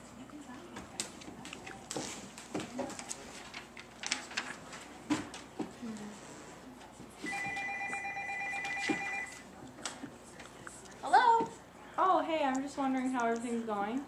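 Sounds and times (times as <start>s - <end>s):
desk telephone ringing: 7.3s - 9.4s.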